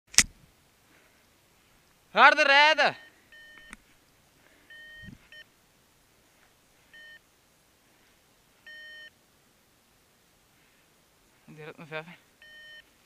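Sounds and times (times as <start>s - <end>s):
short electronic beeps: 2.9s - 3.8s, 4.7s - 5.5s, 6.9s - 7.2s, 8.7s - 9.1s, 12.4s - 12.8s.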